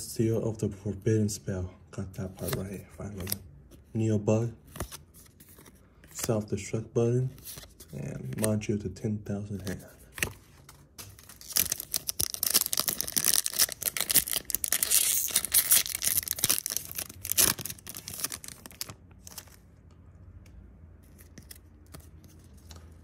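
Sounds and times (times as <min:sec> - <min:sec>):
foil wrapper tearing: 0:11.2 - 0:19.4.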